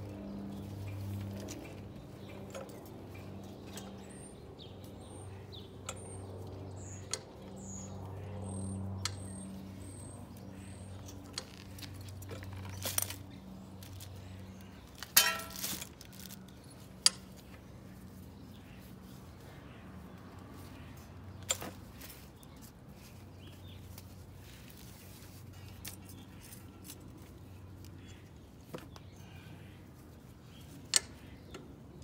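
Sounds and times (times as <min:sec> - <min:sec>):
metal pipe clicks and clinks: 0:15.1 - 0:15.9
metal pipe rattle: 0:15.1 - 0:15.9.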